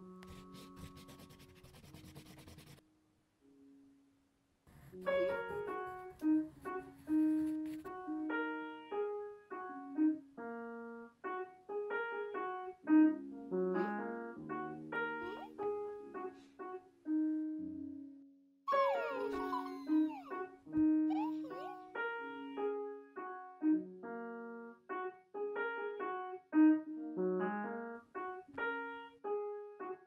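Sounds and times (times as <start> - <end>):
piano music: 0.0 - 2.8, 4.7 - 18.1, 18.7 - 30.0
pencil scratching on paper: 0.2 - 2.8, 4.7 - 8.0.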